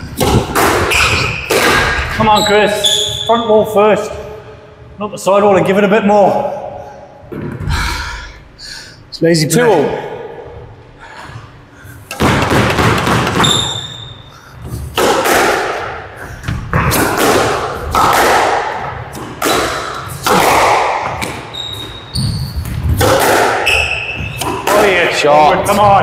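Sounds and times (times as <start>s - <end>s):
squash racket hitting ball: 0.0s - 2.2s, 12.1s - 26.0s
ball striking walls: 0.1s - 2.2s, 12.1s - 14.0s, 14.9s - 21.5s, 22.6s - 26.0s
shoes squeaking on floor: 0.9s - 1.5s, 2.2s - 3.4s, 13.4s - 14.2s, 21.1s - 23.0s, 23.6s - 24.6s.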